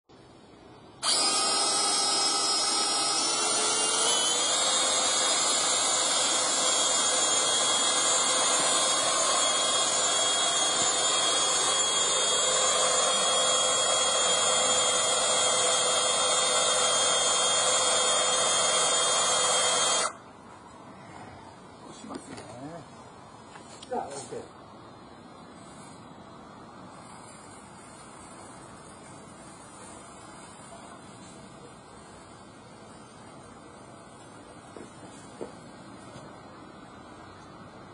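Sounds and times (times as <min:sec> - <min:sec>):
drill motor whine: 0:01.0 - 0:20.2.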